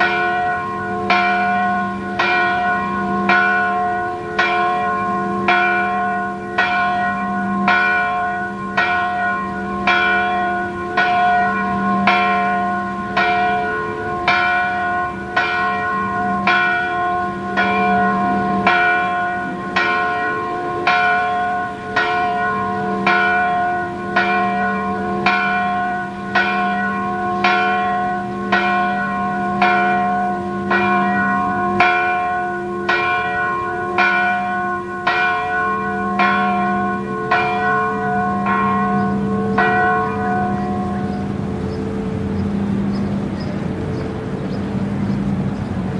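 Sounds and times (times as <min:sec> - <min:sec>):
bells humming: 0:00.0 - 0:45.9
church bells pealing: 0:00.0 - 0:45.9.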